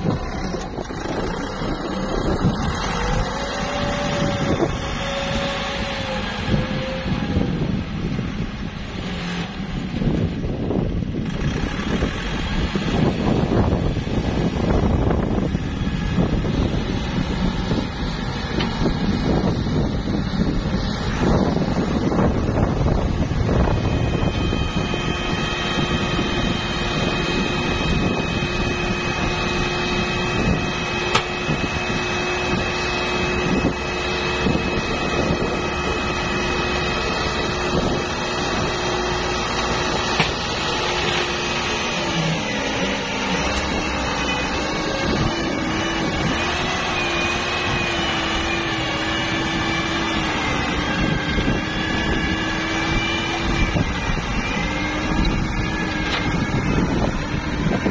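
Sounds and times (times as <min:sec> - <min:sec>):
tractor diesel engine running: 0:00.0 - 0:57.9.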